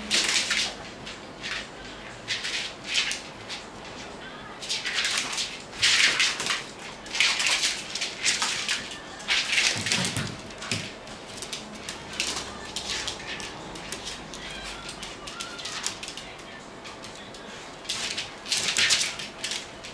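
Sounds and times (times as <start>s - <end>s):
dog claws scrabbling on floor: 4.7s - 17.2s, 17.8s - 19.9s.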